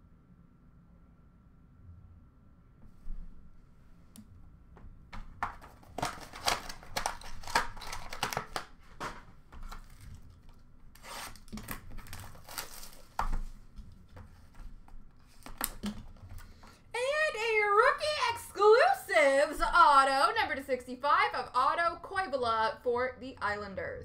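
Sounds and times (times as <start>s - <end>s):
card wrappers crinkling and tearing: 5.4s - 13.7s, 15.2s - 16.6s.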